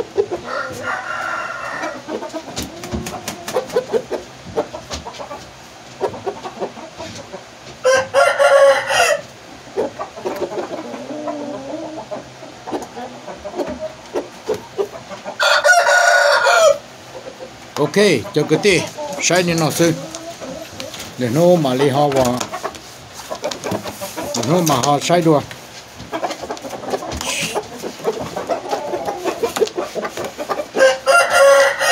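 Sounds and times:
rooster clucking: 0.0 - 31.9
rooster crowing: 0.4 - 2.1, 7.8 - 9.3, 15.4 - 16.9, 30.8 - 31.9.

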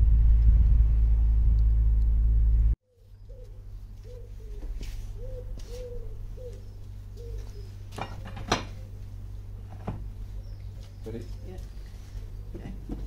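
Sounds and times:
low hum: 0.0 - 13.0
pigeon cooing: 2.9 - 9.0.

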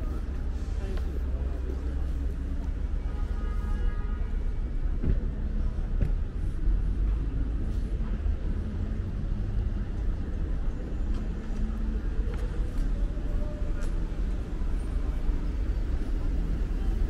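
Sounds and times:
car traffic rumble: 0.0 - 17.0.

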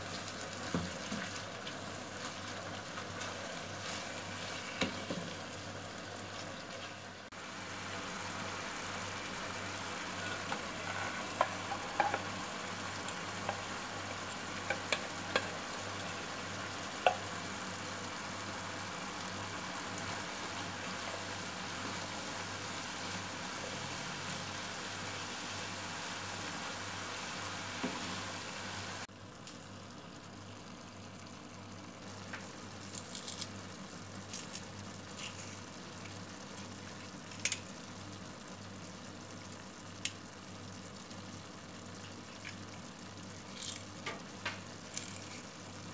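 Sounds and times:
meat sizzling in a frying pan: 0.0 - 45.9
spatula scraping a pan: 10.1 - 12.4.

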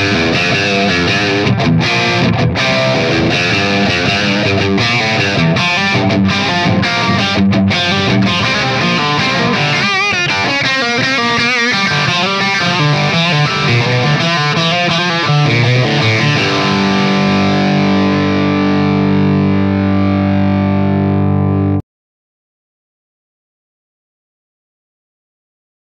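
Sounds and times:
distorted electric guitar lead: 0.0 - 21.8.

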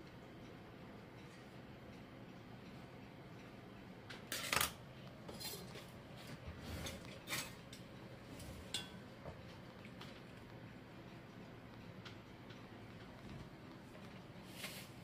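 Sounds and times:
metal utensils clattering: 5.3 - 5.9, 6.8 - 7.8, 8.7 - 9.0.

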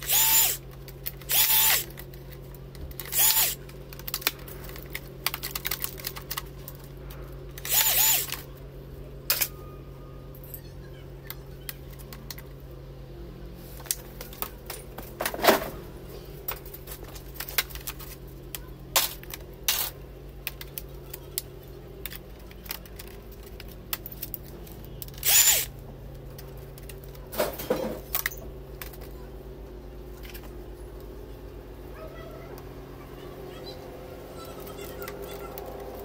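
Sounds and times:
brief whir: 0.0 - 0.6, 1.2 - 1.9, 3.0 - 3.6, 7.6 - 8.4, 25.2 - 25.7
low steady hum: 0.0 - 36.0
clicks and clatter of laptop parts: 0.7 - 7.7, 16.4 - 25.2, 26.1 - 29.2.

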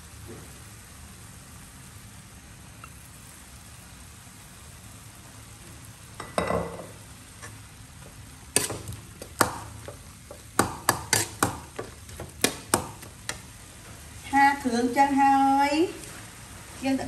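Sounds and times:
meat sizzling in oil: 0.0 - 17.0
metal spatula clanking on wok: 8.6 - 9.6, 10.6 - 11.6.

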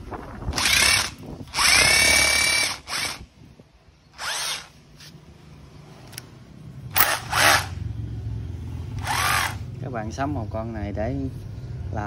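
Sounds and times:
rotary hammer drilling into concrete: 0.5 - 3.2, 4.2 - 4.7, 6.9 - 7.8, 9.0 - 9.6.

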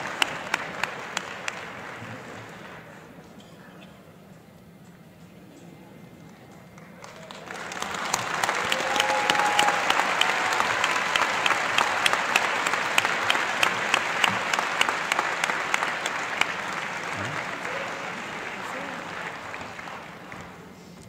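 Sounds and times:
close person clapping steadily: 0.0 - 2.0, 6.5 - 20.6
crowd applauding in a hall: 0.0 - 3.3, 6.3 - 21.0.

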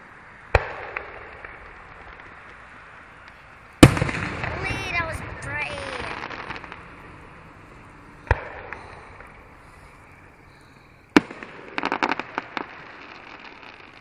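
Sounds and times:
crackling firework pops: 0.0 - 7.0, 8.2 - 10.2, 11.1 - 14.0
firework sharp bang: 0.5 - 2.4, 3.8 - 7.4, 8.2 - 10.2, 11.1 - 14.0
firework boom: 3.8 - 10.3.

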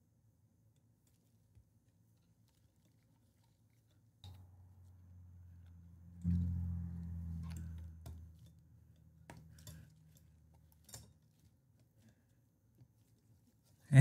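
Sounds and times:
low note: 6.2 - 7.9
faint metal clicks and taps: 7.4 - 13.4.

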